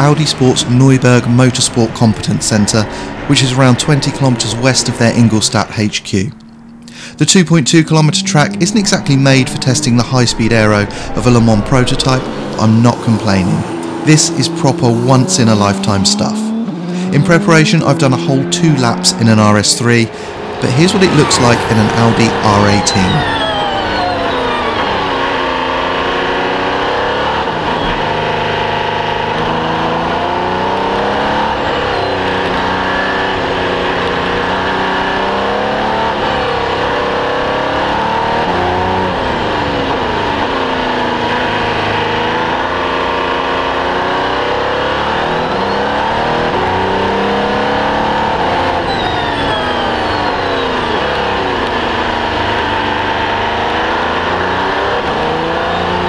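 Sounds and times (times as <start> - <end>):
race car engine revving: 0.0 - 56.0.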